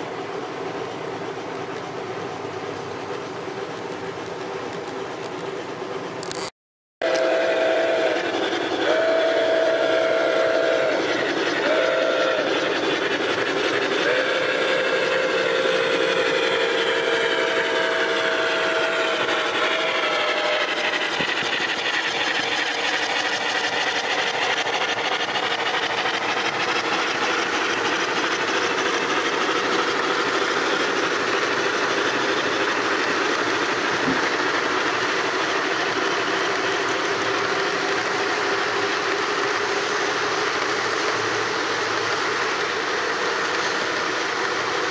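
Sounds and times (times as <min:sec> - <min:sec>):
train running noise: 0:00.0 - 0:44.9
steam locomotive chime whistle: 0:07.0 - 0:13.2, 0:13.9 - 0:24.1.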